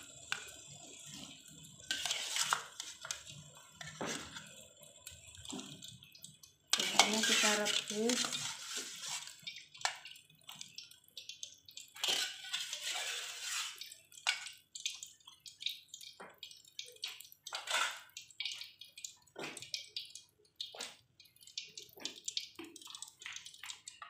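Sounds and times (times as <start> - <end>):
water splashing and dripping: 0.0 - 24.0
metal utensils clinking on pot: 1.8 - 4.5, 6.7 - 10.2, 11.3 - 18.8.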